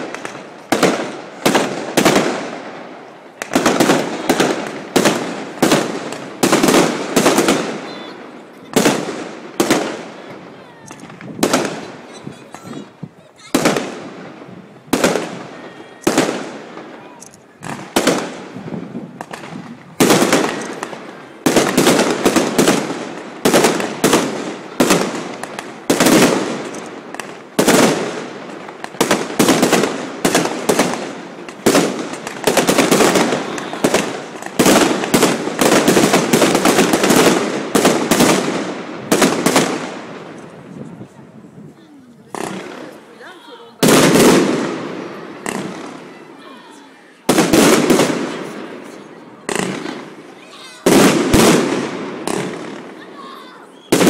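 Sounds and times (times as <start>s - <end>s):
fireworks bangs: 0.0s - 54.0s
fireworks crackling: 0.0s - 54.0s.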